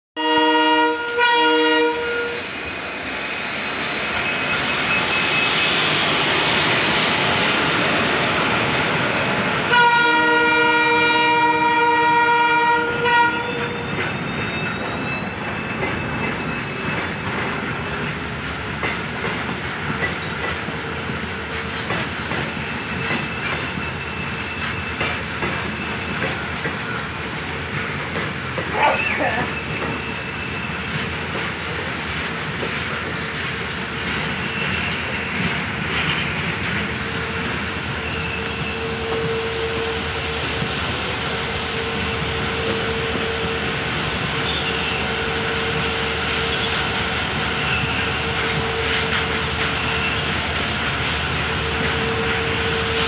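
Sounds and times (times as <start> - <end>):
train horn blasts: 0.2 - 2.5, 9.7 - 13.8, 38.7 - 40.2
freight train rumble and clatter: 0.3 - 53.0.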